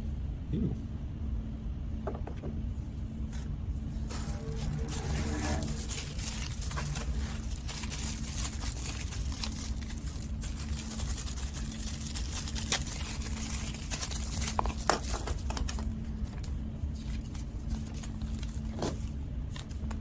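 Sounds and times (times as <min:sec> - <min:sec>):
steady low hum: 0:00.0 - 0:20.0
plastic bags crinkling: 0:04.0 - 0:20.0
plastic toys handled: 0:04.0 - 0:20.0.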